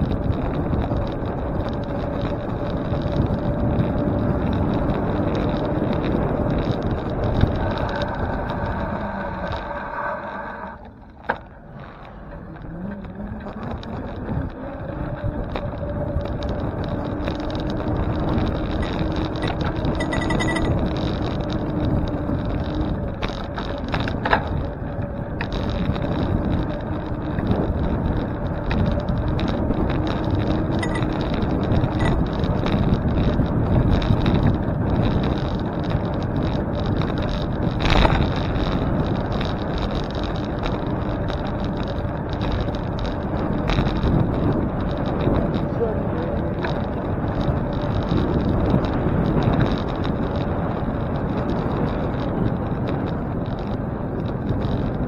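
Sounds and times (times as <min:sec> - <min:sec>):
bicycle tyre road noise: 0:00.0 - 0:55.0
faint steady hum: 0:30.4 - 0:32.2.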